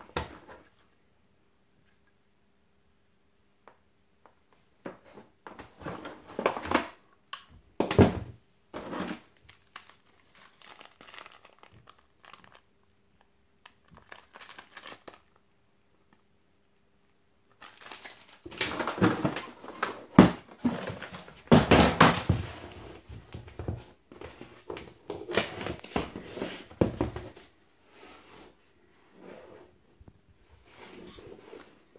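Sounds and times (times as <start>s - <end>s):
plastic packaging crinkling: 8.8s - 15.4s, 17.5s - 19.8s.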